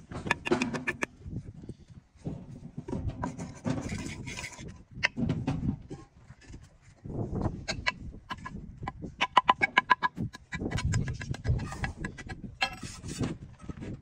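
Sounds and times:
mortar scraping: 0.0 - 1.1, 2.2 - 13.8
trowel tapping on concrete blocks: 0.0 - 1.1, 7.7 - 12.8.

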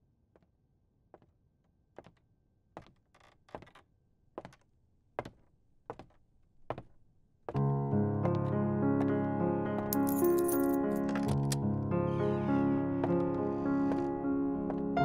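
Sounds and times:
music: 7.5 - 15.0.

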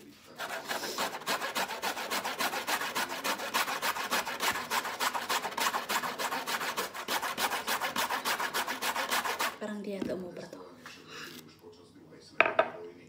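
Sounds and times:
root rasping on metal grater: 0.4 - 9.6.

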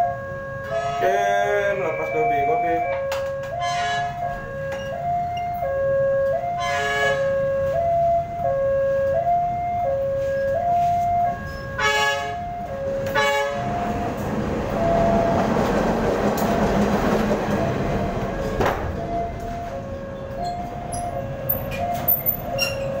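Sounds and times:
passing train rumble: 0.0 - 23.0
two-tone crossing alarm: 0.0 - 23.0
train horn blasts: 0.6 - 4.3, 6.4 - 7.4, 11.5 - 14.0.

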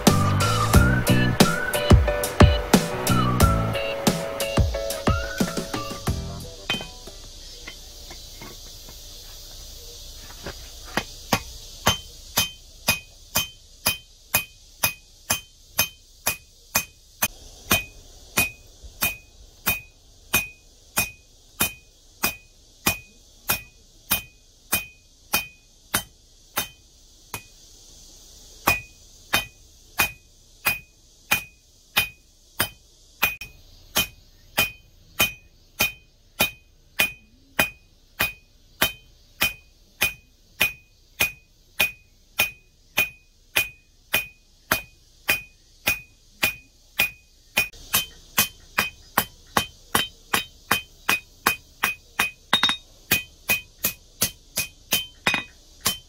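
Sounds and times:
hammer ringing on anvil: 6.7 - 7.1, 51.5 - 52.8, 54.6 - 56.0.

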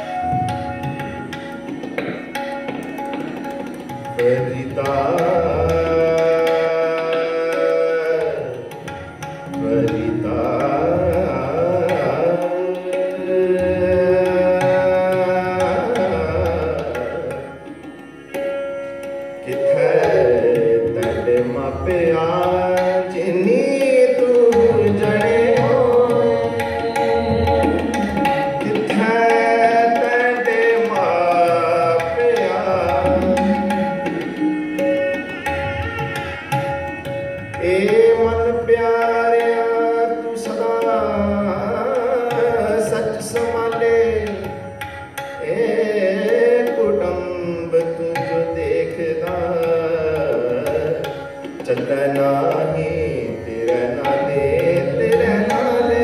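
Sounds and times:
flute: 0.0 - 3.4
bowed string instrument: 0.0 - 56.0
hand drums: 0.0 - 56.0
person singing melodic line: 24.8 - 35.8.

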